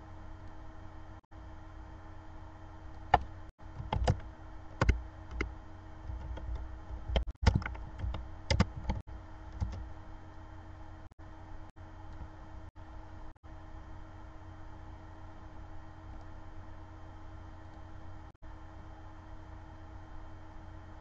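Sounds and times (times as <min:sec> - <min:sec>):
computer keyboard typing: 0:03.1 - 0:05.5, 0:06.1 - 0:09.0, 0:09.6 - 0:09.8.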